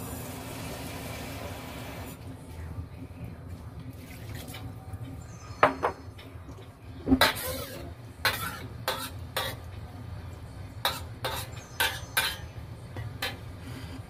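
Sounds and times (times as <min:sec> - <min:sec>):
metal spatula scraping a wok: 0:07.2 - 0:09.7, 0:10.8 - 0:12.6.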